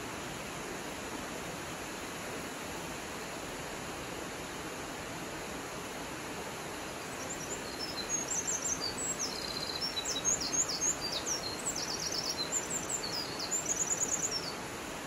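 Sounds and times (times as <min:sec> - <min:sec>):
songbird singing: 0:07.0 - 0:14.7.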